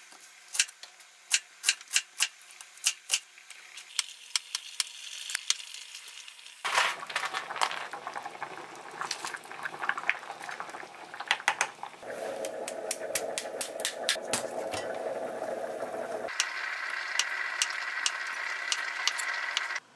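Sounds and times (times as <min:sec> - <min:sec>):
stew bubbling in a pot: 0:06.7 - 0:19.7.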